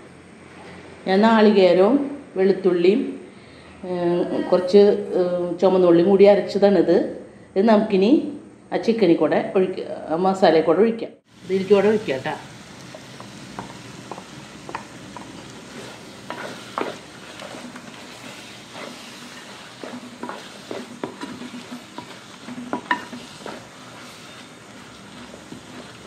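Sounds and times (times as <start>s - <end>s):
masala sizzling: 11.2s - 26.0s
spatula scraping a metal pot: 15.7s - 26.0s.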